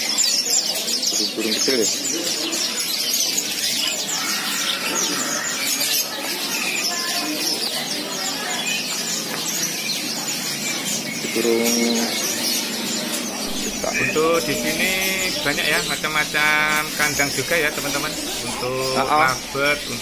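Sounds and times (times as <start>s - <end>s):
songbirds chirping and singing: 0.0s - 20.0s
low-pitched bird call: 11.2s - 20.0s.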